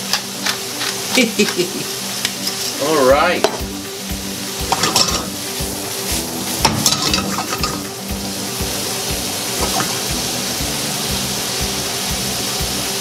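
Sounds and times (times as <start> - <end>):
broccoli sizzling in butter: 0.0 - 13.0
pan scraping clatter: 2.3 - 2.8, 4.7 - 5.3, 6.6 - 7.8.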